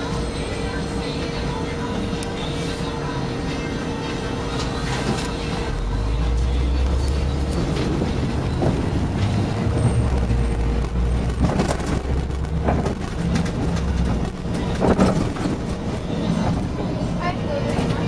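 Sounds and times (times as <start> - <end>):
bus engine and road rumble: 0.0 - 18.0
knocks and rattles: 10.0 - 15.8.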